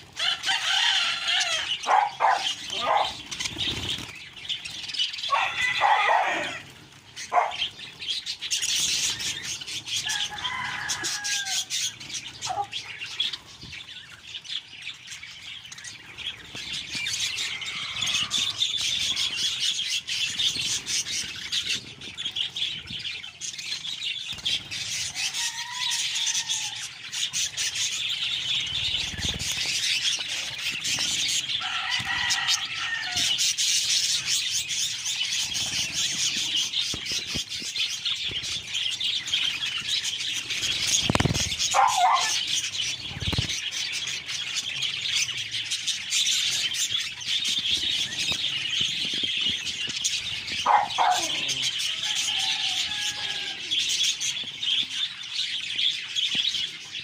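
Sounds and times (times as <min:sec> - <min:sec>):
loud bird call: 0:00.0 - 0:04.0, 0:05.2 - 0:07.8, 0:40.7 - 0:42.7, 0:50.6 - 0:53.9
wings fluttering: 0:00.0 - 0:14.2, 0:15.7 - 0:54.9
budgerigars chattering and warbling: 0:00.0 - 0:57.0.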